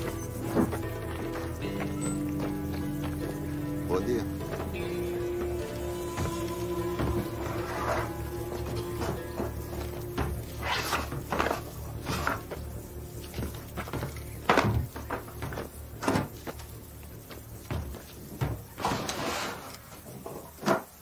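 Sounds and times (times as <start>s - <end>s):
low steady hum: 0.0s - 18.8s
wooden pallets knocking and scraping: 0.0s - 21.0s.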